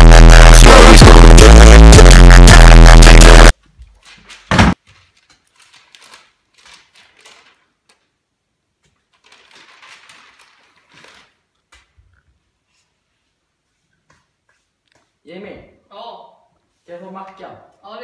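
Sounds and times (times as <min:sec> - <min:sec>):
loud electronic music: 0:00.0 - 0:03.5
newspaper rustling: 0:03.6 - 0:08.3, 0:08.9 - 0:12.0.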